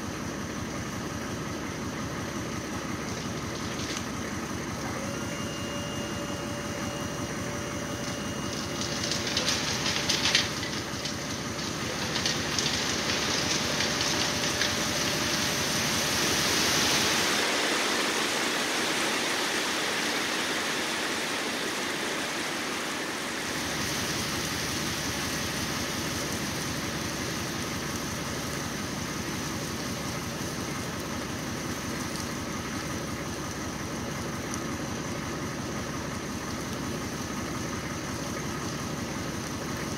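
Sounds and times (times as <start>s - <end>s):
truck engine running: 0.0s - 39.9s
crushed rock pouring from truck: 2.8s - 4.8s, 6.7s - 21.6s.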